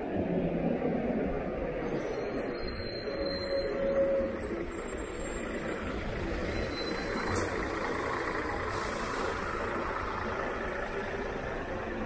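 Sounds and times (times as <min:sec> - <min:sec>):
heavy vehicle engine rumbling: 0:00.0 - 0:12.0
air brake hiss: 0:08.7 - 0:09.6.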